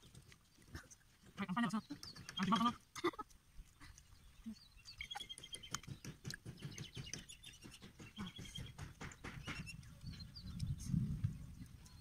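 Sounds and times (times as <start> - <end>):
bird chirping trills: 1.5 - 2.8, 3.9 - 12.0.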